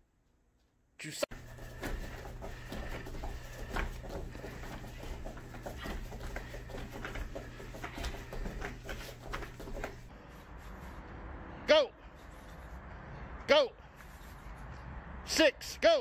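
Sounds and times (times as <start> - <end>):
steady low hum: 1.3 - 10.1
taps and rustles on foam mats: 1.3 - 10.1.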